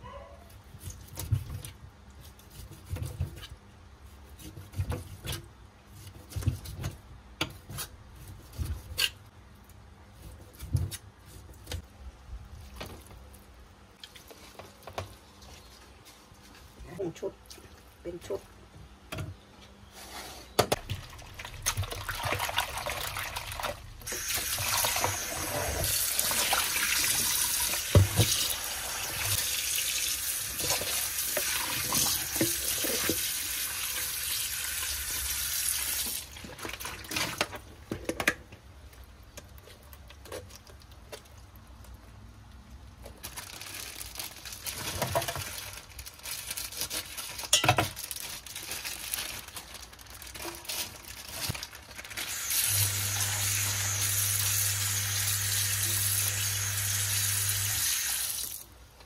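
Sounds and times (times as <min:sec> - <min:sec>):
water splashing: 0:20.8 - 0:27.7.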